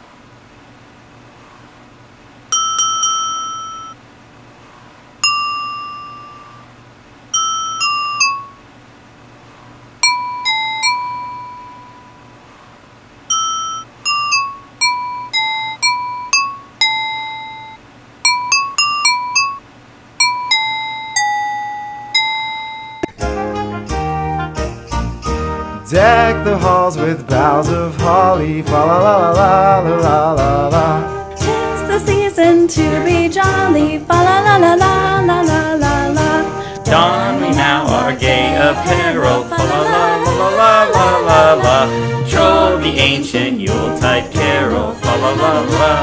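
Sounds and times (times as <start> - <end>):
wine glasses ringing melody: 2.5 - 4.0, 5.2 - 6.6, 7.3 - 8.6, 10.0 - 12.2, 13.3 - 19.6, 20.2 - 23.2.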